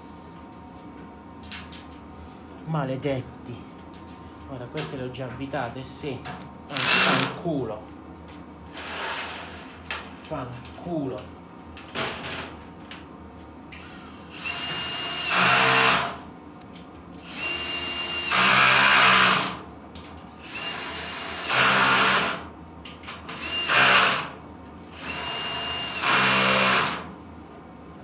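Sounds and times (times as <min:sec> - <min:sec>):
drill driving screws into metal: 0:06.8 - 0:07.3, 0:13.8 - 0:16.2, 0:17.2 - 0:19.6, 0:20.4 - 0:22.4, 0:23.3 - 0:27.1.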